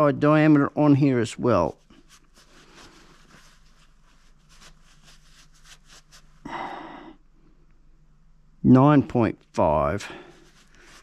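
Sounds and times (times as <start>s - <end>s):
cloth rag wiping rubber seal: 1.5s - 6.4s, 10.2s - 11.0s.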